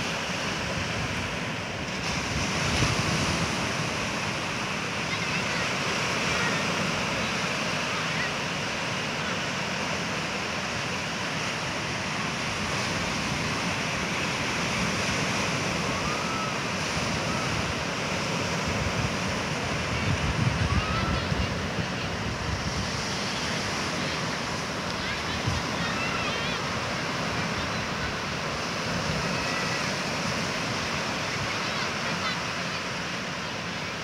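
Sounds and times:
ocean surf breaking: 0.0s - 34.0s
wind buffeting microphone: 12.4s - 31.5s.

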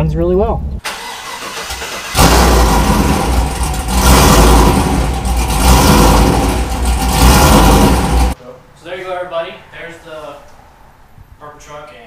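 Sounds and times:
engine starting and running rough: 0.8s - 8.4s.

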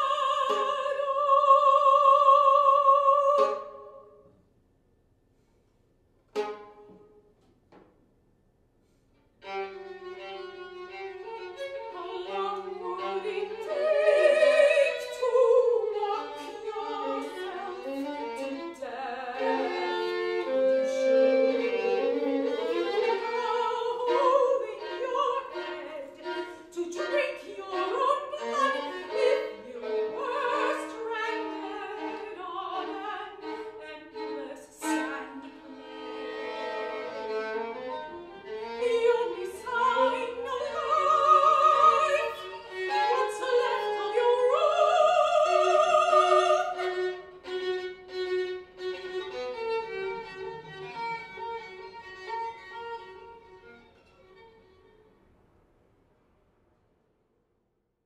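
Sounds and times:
woman singing operatically: 0.0s - 4.1s, 11.9s - 19.8s, 22.9s - 35.7s, 38.8s - 47.0s
violin bowing: 0.0s - 4.3s, 6.3s - 7.4s, 9.3s - 55.2s.

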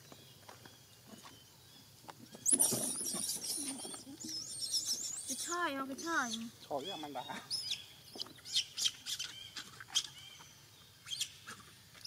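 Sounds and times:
high-pitched wavering chirping: 2.4s - 9.4s.

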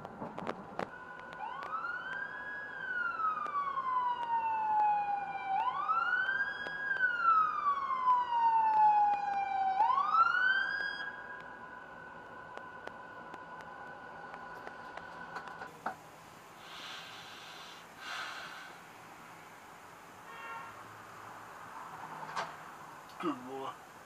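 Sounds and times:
ambulance siren wailing: 0.8s - 15.7s.

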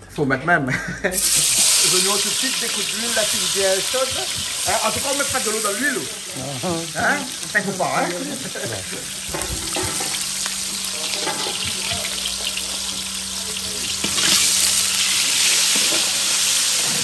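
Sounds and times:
onions sizzling in oil: 1.2s - 17.0s.

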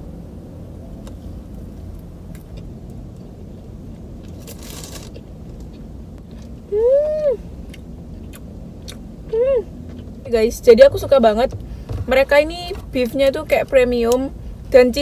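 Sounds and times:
crunchy chewing: 2.3s - 10.3s
person humming mmm: 6.7s - 7.4s
car engine idling: 7.5s - 14.7s.

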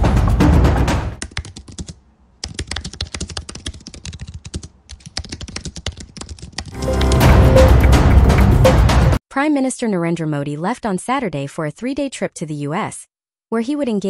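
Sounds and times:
typing on computer keyboard: 1.2s - 7.3s
music track: 6.8s - 9.2s.

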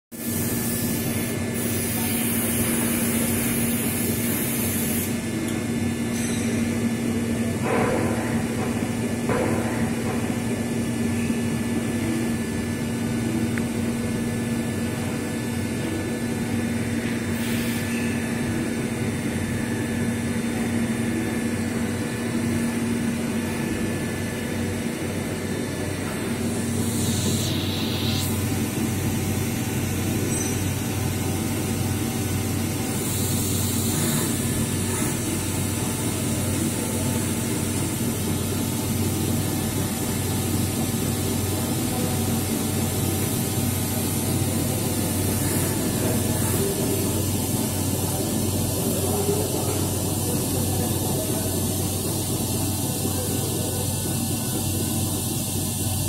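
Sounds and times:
machinery humming: 0.2s - 56.0s
loud hiss: 26.3s - 29.7s.

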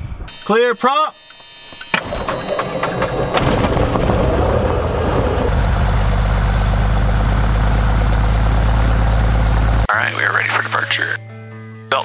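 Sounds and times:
airplane engine starting and idling: 1.3s - 9.9s.

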